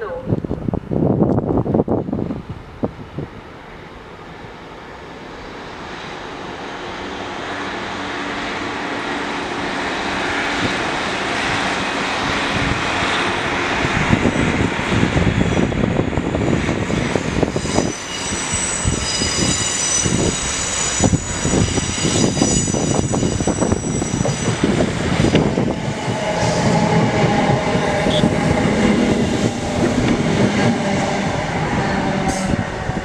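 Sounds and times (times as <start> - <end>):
diesel train engines: 0.0 - 33.0
high-pitched squeal: 16.9 - 33.0.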